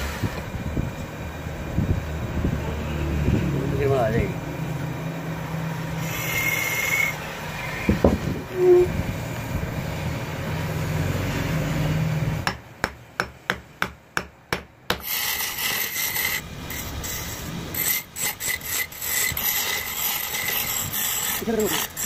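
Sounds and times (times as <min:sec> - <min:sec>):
lathe motor hum: 0:05.4 - 0:07.9
chisel scraping wood on lathe: 0:06.0 - 0:08.9, 0:14.9 - 0:22.0.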